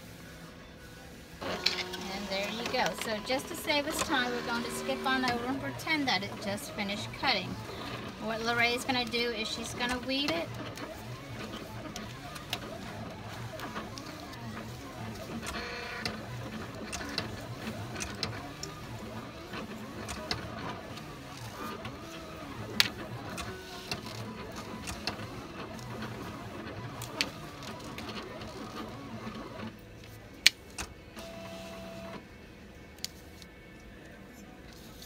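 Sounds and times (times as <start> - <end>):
steady background hum: 0.0 - 35.0
weeding hook scratching vinyl: 1.4 - 29.8.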